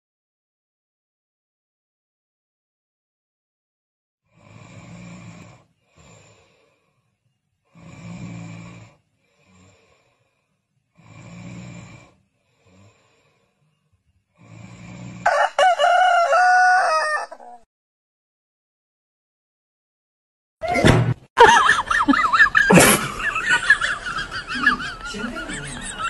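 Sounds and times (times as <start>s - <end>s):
person snoring: 4.3s - 7.1s, 7.7s - 13.7s, 14.3s - 15.4s
rooster crowing: 15.2s - 17.6s.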